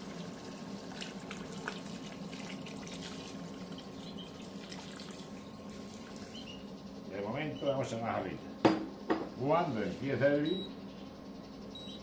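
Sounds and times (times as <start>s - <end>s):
water pouring into a pot: 0.0s - 6.4s
faint steady hum: 0.0s - 12.0s.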